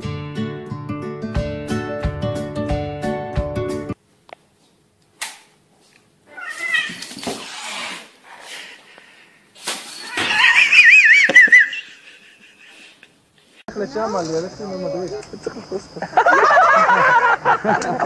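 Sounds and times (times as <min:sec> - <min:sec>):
animals scuffling on tile floor: 0:05.8 - 0:08.6
high wavering animal cry: 0:06.3 - 0:08.1, 0:09.9 - 0:12.4
cat hissing: 0:06.3 - 0:08.9.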